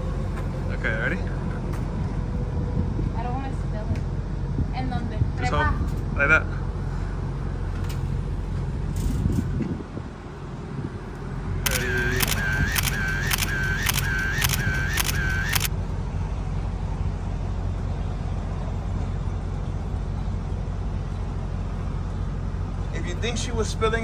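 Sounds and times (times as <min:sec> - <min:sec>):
idling vehicles rumble: 0:00.0 - 0:24.0
camera shutter clicks: 0:11.7 - 0:15.7.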